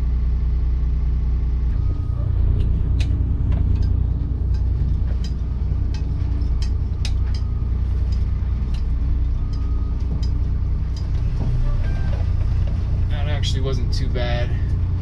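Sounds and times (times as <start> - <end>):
diesel engine droning: 0.0 - 15.0
clicks and rattles: 2.6 - 13.1.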